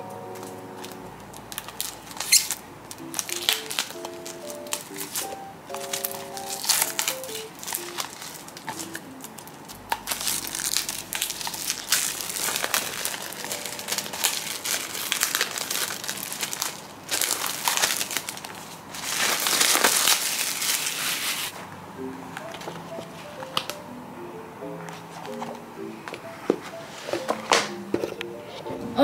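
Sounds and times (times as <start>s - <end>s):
plastic wrap crinkling: 0.0s - 21.6s.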